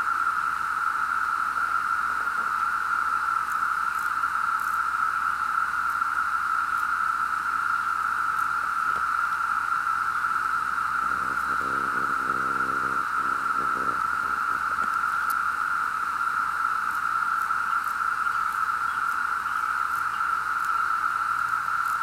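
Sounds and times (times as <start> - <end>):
cicadas chorus droning: 0.0 - 22.0.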